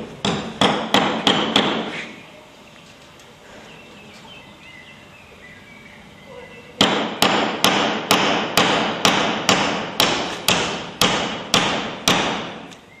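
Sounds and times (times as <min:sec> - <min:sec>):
hammer blows echoing: 0:00.0 - 0:02.1, 0:06.8 - 0:12.7.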